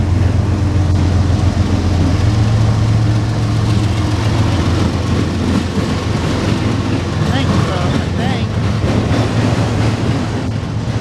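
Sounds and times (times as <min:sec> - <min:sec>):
diesel locomotive engine drone: 0:00.0 - 0:11.0
train wheels on rails: 0:00.0 - 0:11.0.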